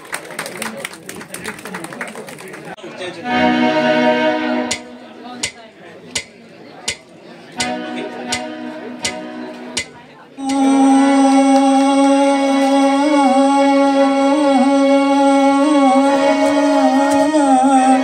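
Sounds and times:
electronic keyboard: 0:03.2 - 0:05.5, 0:07.6 - 0:18.0
man singing through a pa: 0:10.4 - 0:18.0.

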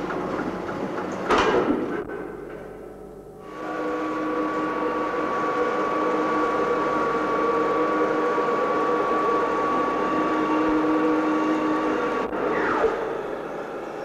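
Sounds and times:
pallet elevator motor and chains: 0:03.4 - 0:14.0.

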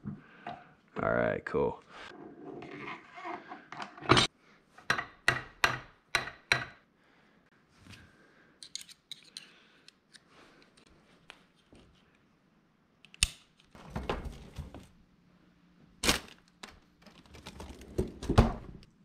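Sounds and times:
small metal parts clicking: 0:08.6 - 0:09.5.

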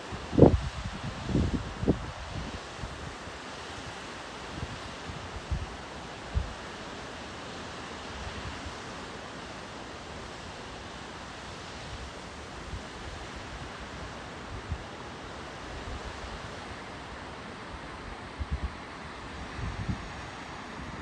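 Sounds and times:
wind buffeting microphone: 0:00.2 - 0:03.0, 0:18.2 - 0:21.0
waterfall rushing: 0:03.1 - 0:21.0.

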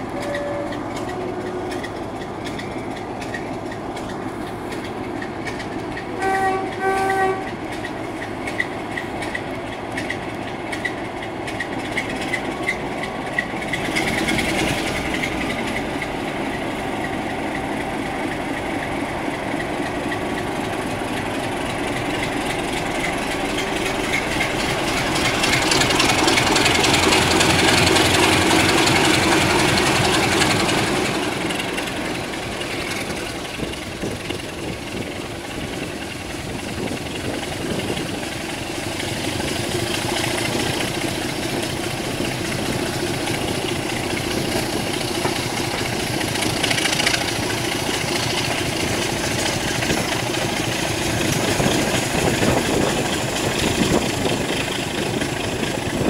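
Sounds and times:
diesel locomotive engine: 0:00.0 - 0:56.0
train wheels on rails: 0:00.0 - 0:56.0
locomotive horn blasts: 0:00.1 - 0:01.8, 0:06.1 - 0:07.6.

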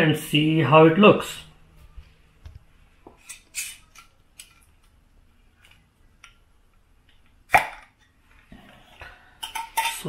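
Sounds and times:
glass jars clicking and scraping: 0:09.4 - 0:10.0.

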